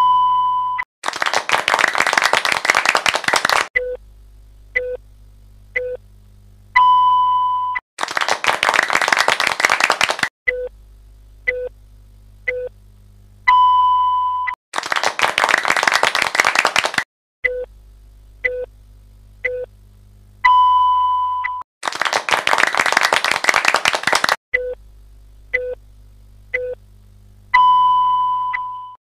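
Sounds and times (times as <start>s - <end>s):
long high beep: 0.0s - 0.8s, 6.8s - 7.8s, 13.5s - 14.6s, 20.5s - 21.6s, 27.6s - 29.0s
short beeps: 0.0s - 0.8s, 6.8s - 7.8s, 13.5s - 14.6s, 20.5s - 21.6s, 27.6s - 29.0s
applause: 1.0s - 3.7s, 8.0s - 10.3s, 14.8s - 17.1s, 21.8s - 24.4s.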